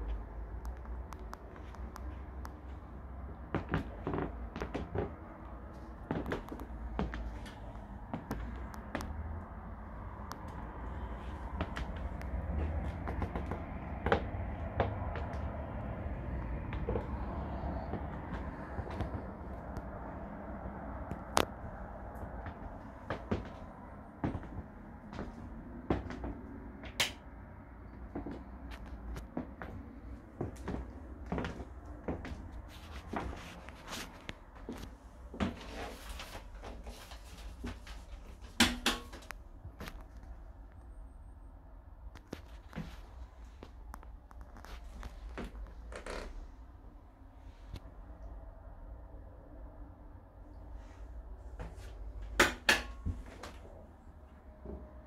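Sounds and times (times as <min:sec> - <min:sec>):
steady low rumble: 0:00.0 - 0:38.6
footsteps and handling noise: 0:00.0 - 0:40.6, 0:42.1 - 0:46.3, 0:51.5 - 0:55.0
footsteps on wooden floor: 0:03.2 - 0:09.2, 0:11.3 - 0:15.7, 0:22.2 - 0:26.4, 0:28.0 - 0:35.8.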